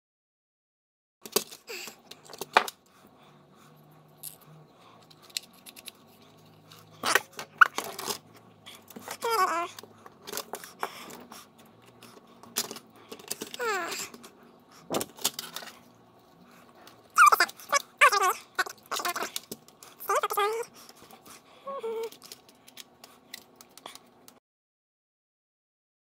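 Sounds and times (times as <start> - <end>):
plastic parts clicking and knocking: 1.2 - 2.9, 5.0 - 6.3, 7.0 - 15.8, 16.8 - 21.3, 22.0 - 24.4.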